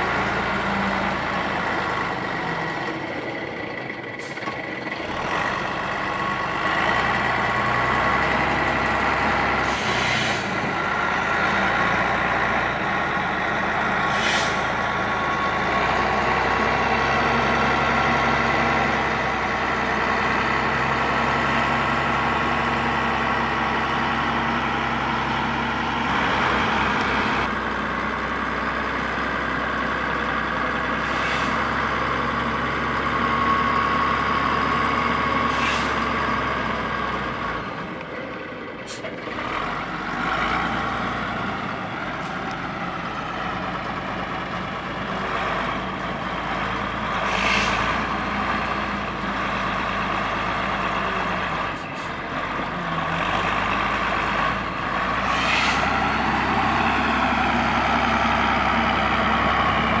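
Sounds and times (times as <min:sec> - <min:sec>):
diesel loader engine under load: 0:00.0 - 1:00.0
air hisses: 0:14.1 - 0:14.7, 0:55.2 - 0:56.0.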